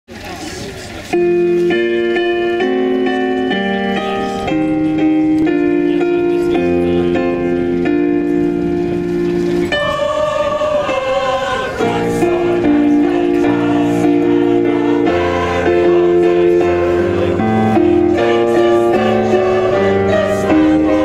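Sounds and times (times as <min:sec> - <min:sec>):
choir singing slow song: 0:09.5 - 0:21.0.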